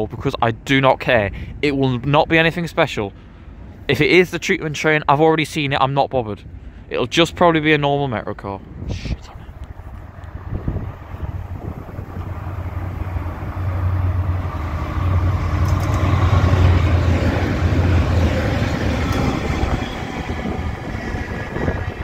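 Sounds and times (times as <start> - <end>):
diesel locomotive drone: 1.3 - 5.2, 6.4 - 7.1, 8.4 - 22.0
wagon wheel and rail noise: 9.5 - 22.0.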